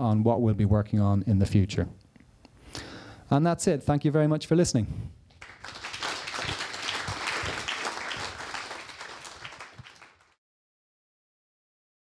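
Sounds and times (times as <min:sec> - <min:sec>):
audience applauding: 0:05.4 - 0:10.4.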